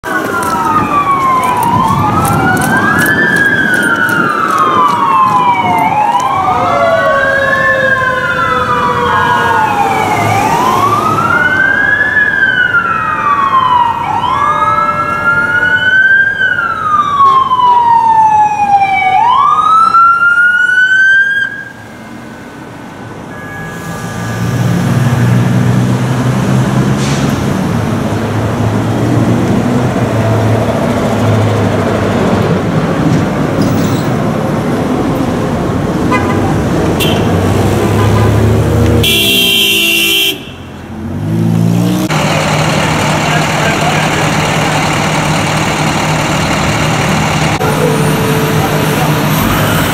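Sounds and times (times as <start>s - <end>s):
truck engine rumbling: 0.0s - 18.3s, 22.2s - 49.9s
emergency siren wailing: 0.0s - 27.0s, 41.4s - 49.9s.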